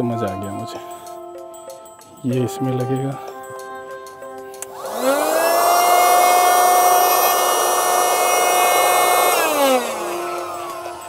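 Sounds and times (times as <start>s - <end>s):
electric air pump whining: 4.6s - 11.0s.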